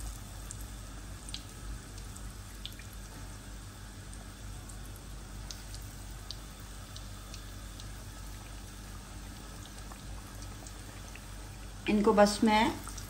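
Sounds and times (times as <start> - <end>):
faint low hum: 0.0 - 13.0
food deep-frying in oil: 0.0 - 13.0
small pops and crackles of oil: 1.2 - 3.1, 4.0 - 8.6, 9.4 - 11.4.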